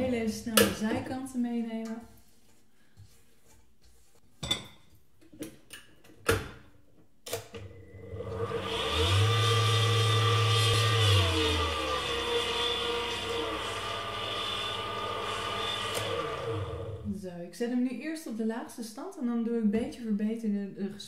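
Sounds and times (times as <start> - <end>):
stand mixer motor whining: 7.6 - 17.1.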